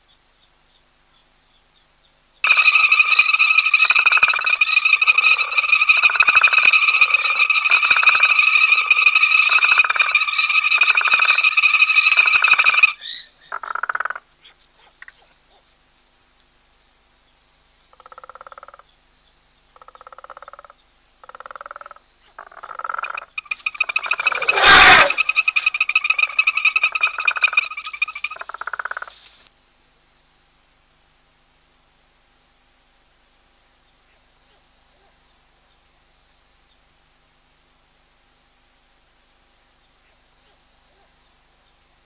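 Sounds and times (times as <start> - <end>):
single frog trilled calls: 2.4 - 15.3, 17.9 - 19.0, 19.7 - 29.2
frog chorus trilling: 2.4 - 15.6, 17.9 - 18.9, 19.7 - 29.2.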